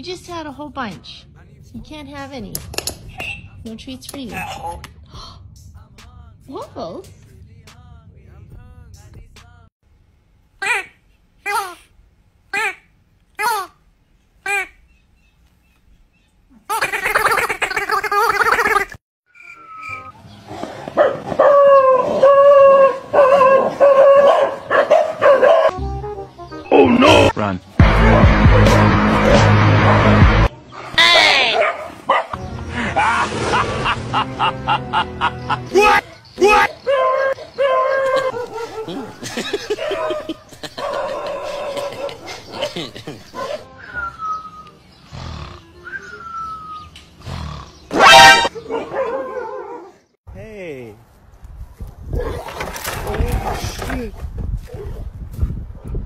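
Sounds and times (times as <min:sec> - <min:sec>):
dogs barking and howling: 0:20.6 - 0:25.7, 0:29.4 - 0:32.4, 0:35.7 - 0:43.8, 0:47.9 - 0:50.1
wavering cry: 0:35.7 - 0:44.7.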